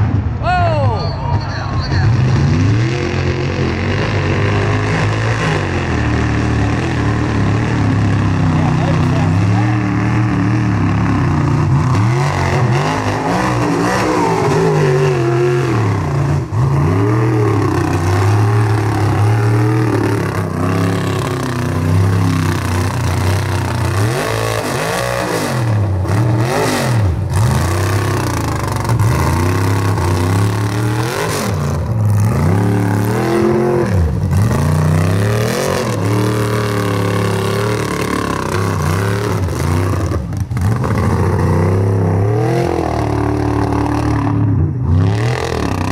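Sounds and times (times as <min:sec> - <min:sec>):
steady low drone: 0:00.0 - 0:45.9
truck engine revving: 0:00.0 - 0:45.9.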